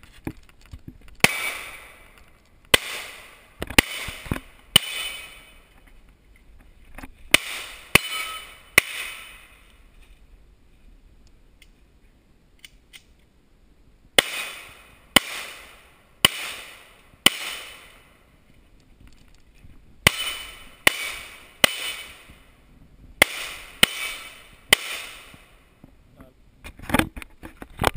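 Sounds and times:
pistol shots echoing: 1.2 - 2.1, 2.7 - 5.6, 7.3 - 9.6, 14.2 - 18.1, 20.0 - 22.4, 23.2 - 25.6.

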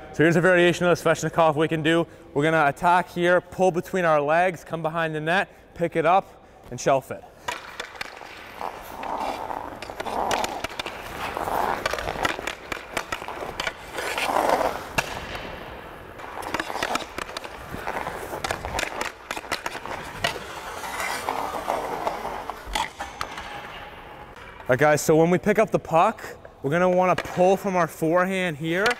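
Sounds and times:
stick clicking on puck: 7.4 - 15.3, 16.2 - 24.5
skate blades scraping ice: 7.4 - 24.4.

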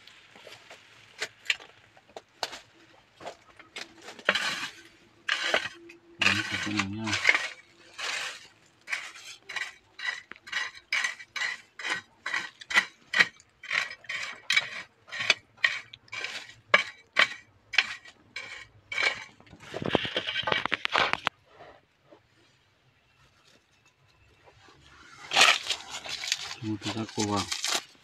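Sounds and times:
machete stabbing gritty soil: 3.8 - 18.1, 25.2 - 28.0.

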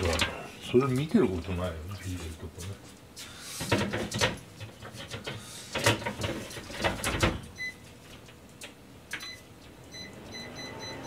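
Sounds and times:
grill tray and door clattering: 3.6 - 7.5.

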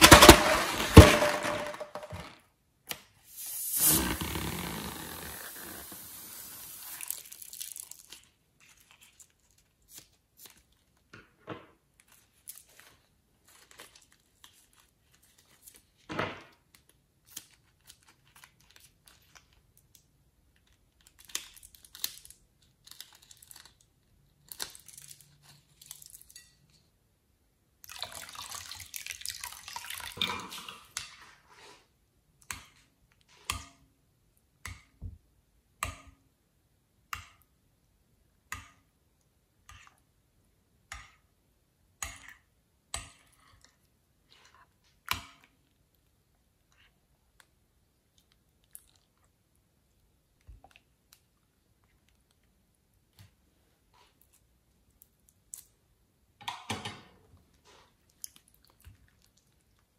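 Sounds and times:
sticky slime squishing: 57.5 - 59.9.

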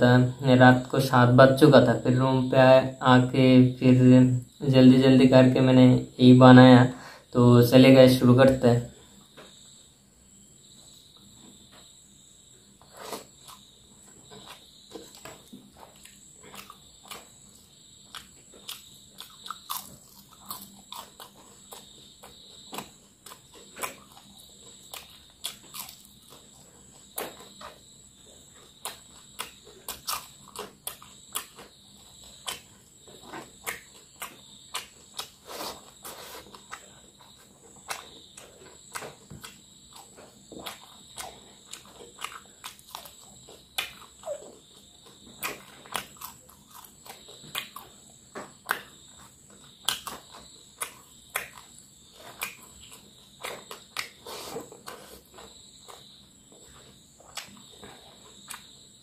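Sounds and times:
wet chewing and lip smacks: 12.9 - 59.0.

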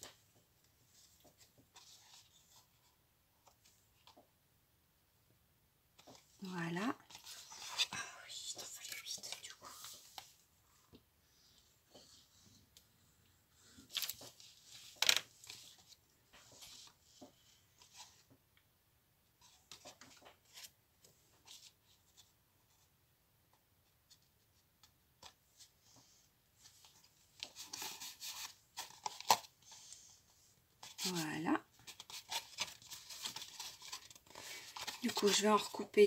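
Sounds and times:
paper rustling: 13.6 - 18.2, 30.8 - 35.9.

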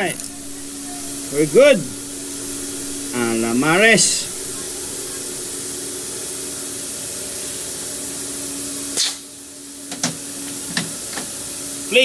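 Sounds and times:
clicks: 0.0 - 5.5
low hum: 0.0 - 5.8.

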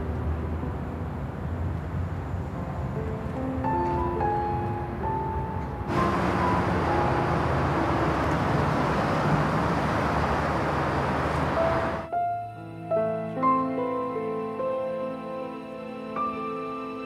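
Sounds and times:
soft background music: 0.0 - 17.0
car driving past: 5.9 - 12.1.

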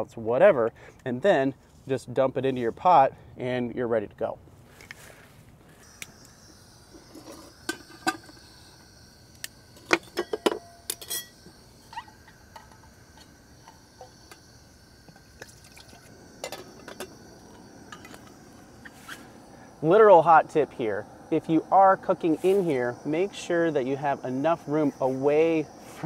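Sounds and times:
gas burner hissing: 5.8 - 26.0
metal pot and lid clinking: 9.9 - 12.9
liquid pouring into bowl: 15.4 - 16.1.

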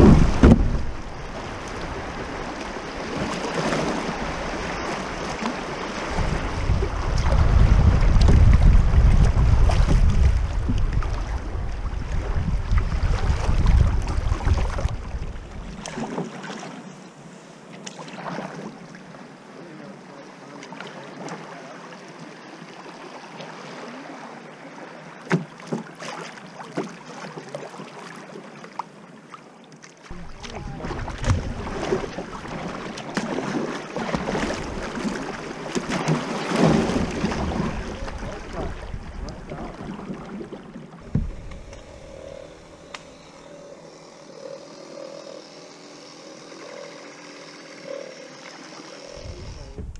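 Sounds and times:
water rushing around kayak: 0.0 - 49.9
wind buffeting microphone: 6.0 - 15.8, 30.1 - 32.3, 36.8 - 39.8, 49.2 - 49.9
sharp water splashes: 30.0 - 41.6.

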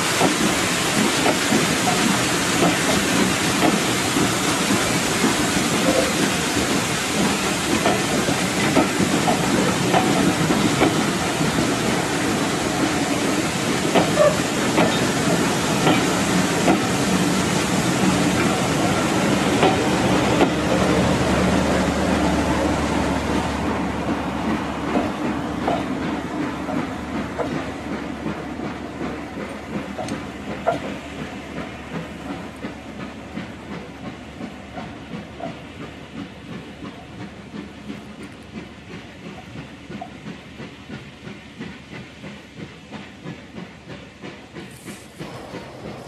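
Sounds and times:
train wheels on rail: 0.0 - 46.0.

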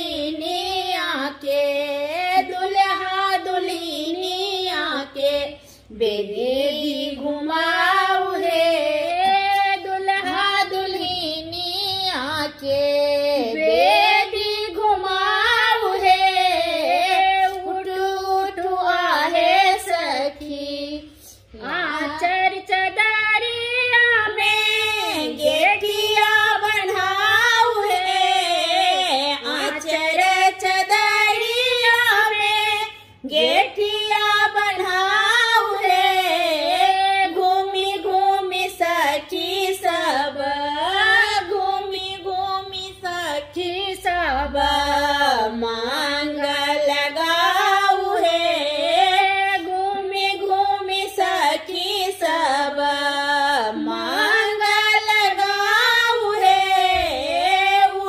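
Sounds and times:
women singing together: 0.0 - 58.0.

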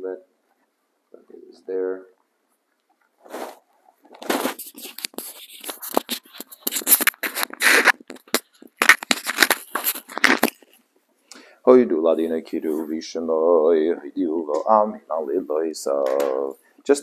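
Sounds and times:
man whispering: 11.6 - 17.0.

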